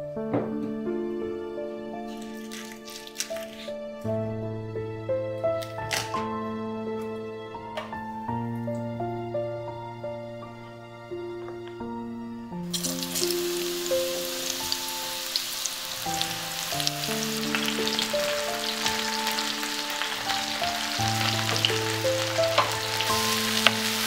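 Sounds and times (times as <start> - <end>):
soft piano music: 0.0 - 24.0
mushrooms sizzling in frying pan: 12.7 - 24.0.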